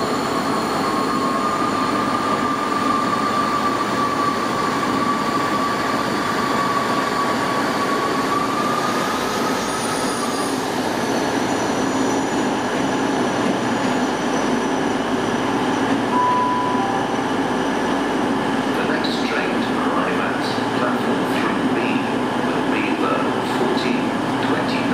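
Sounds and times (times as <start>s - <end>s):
train wheel squeal: 0.0s - 17.7s
diesel train running: 0.0s - 24.9s.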